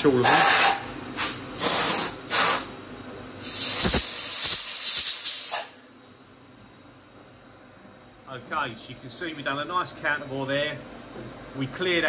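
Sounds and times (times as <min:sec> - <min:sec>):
compressed air blow gun blasting: 0:00.2 - 0:02.7, 0:03.4 - 0:05.8.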